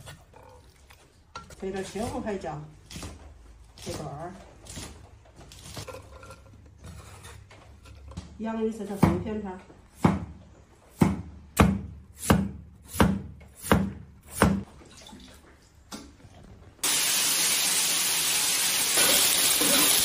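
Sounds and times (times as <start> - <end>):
potatoes sizzling in hot oil: 16.8 - 20.0.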